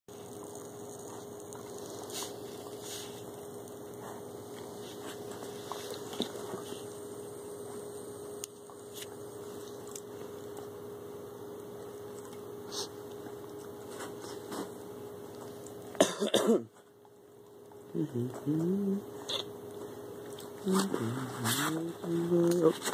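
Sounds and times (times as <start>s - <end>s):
steady low hum: 0.1s - 22.9s
person coughing: 16.0s - 16.8s.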